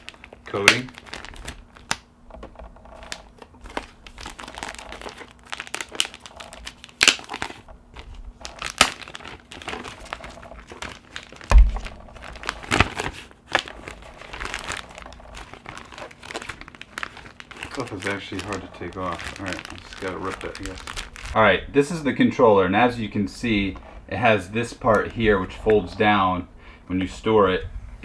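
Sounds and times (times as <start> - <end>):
plastic film crinkling: 0.0 - 21.4
low thump: 11.5 - 12.0.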